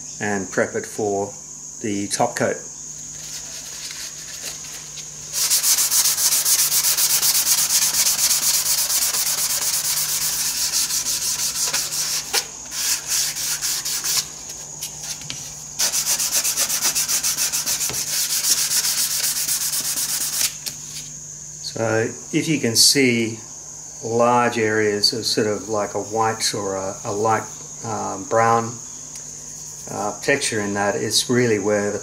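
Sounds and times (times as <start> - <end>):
abrasive rubbing on wood: 3.0 - 20.5.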